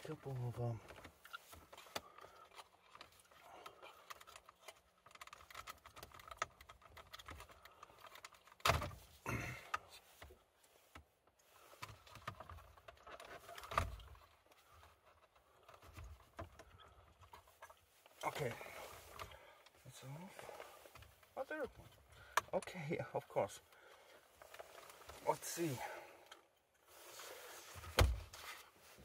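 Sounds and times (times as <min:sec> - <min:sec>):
plastic clicking and rattling: 0:00.8 - 0:09.1.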